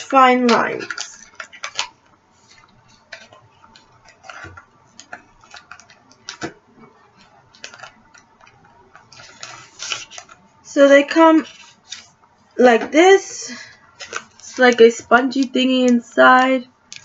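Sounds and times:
cosmetic package crinkling: 0.0s - 10.5s, 14.0s - 16.1s.

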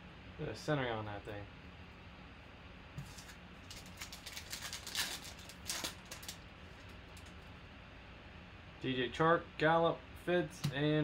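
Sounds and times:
wrapper crinkling and tearing: 3.1s - 7.3s.

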